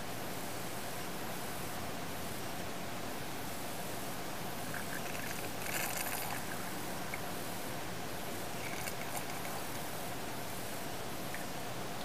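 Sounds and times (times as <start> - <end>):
background hiss: 0.0 - 12.0
wash bottle squirting water: 4.7 - 6.6, 8.6 - 9.6.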